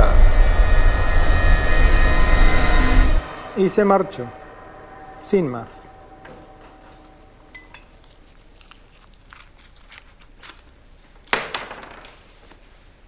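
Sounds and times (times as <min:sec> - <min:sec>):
crockery and cutlery clinking: 0:06.2 - 0:08.4.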